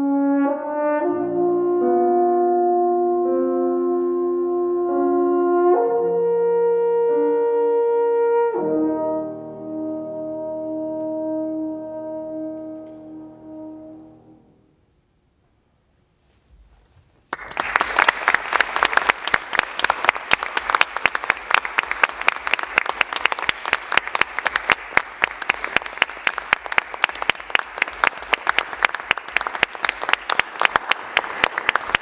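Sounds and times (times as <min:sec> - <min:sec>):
audience applauding: 0:17.3 - 0:32.0.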